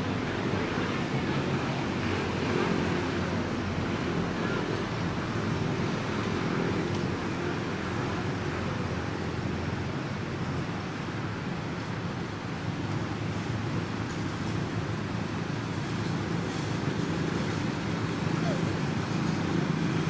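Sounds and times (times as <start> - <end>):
faint indistinct voices: 0.1 - 5.9.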